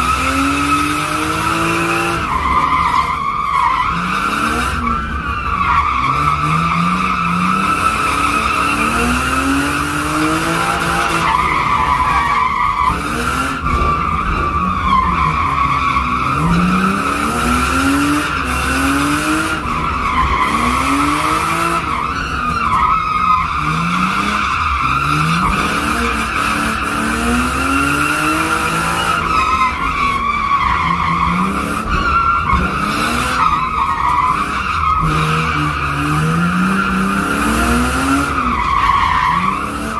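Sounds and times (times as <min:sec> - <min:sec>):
tyres squealing: 0:00.6 - 0:26.4.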